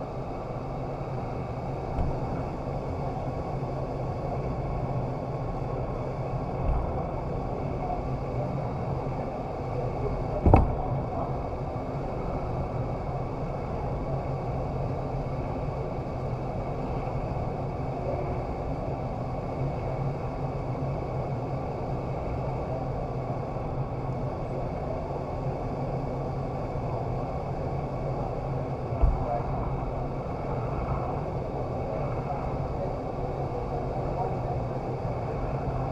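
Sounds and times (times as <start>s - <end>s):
low steady hum: 0.0s - 35.9s
rush of air and fan noise: 0.0s - 35.9s
sharp thump: 10.4s - 10.8s.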